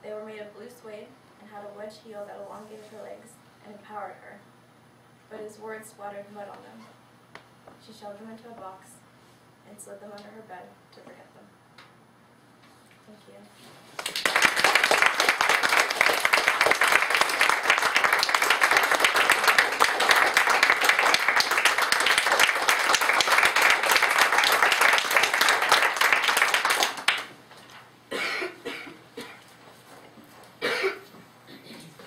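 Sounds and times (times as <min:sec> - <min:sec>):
audience applauding: 0:14.0 - 0:27.4.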